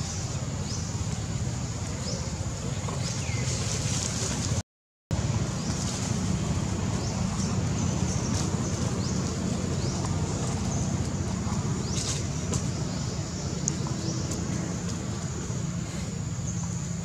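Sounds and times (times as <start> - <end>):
wind rumble on microphone: 5.2 - 17.0.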